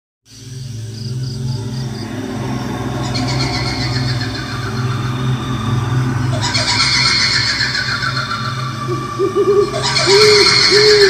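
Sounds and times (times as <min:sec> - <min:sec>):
low steady drone: 0:00.3 - 0:11.0
woman's quavering ghostly laugh: 0:08.8 - 0:11.0.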